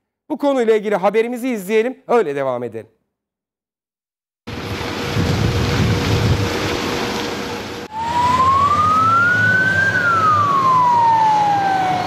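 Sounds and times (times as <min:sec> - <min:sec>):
rushing noise: 0:04.5 - 0:12.0
fire engine siren wailing: 0:07.8 - 0:12.0.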